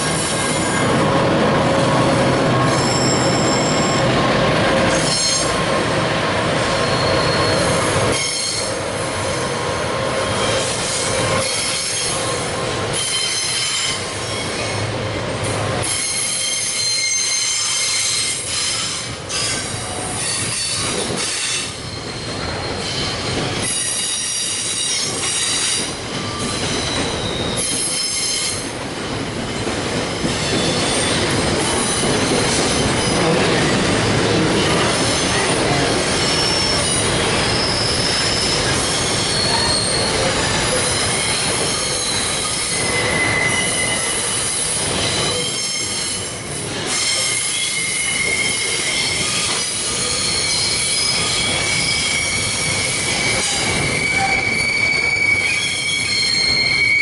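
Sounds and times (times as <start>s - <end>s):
high-pitched wheel squeals: 2.0s - 4.1s, 6.6s - 8.8s, 15.8s - 28.6s, 35.0s - 57.0s
train wagons clattering over rails: 10.2s - 57.0s.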